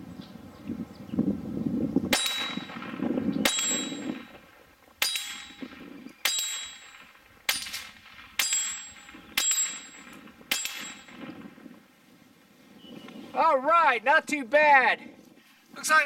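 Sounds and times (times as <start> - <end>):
bullet ringing steel target: 2.1 - 11.6
pistol shots: 2.1 - 11.6.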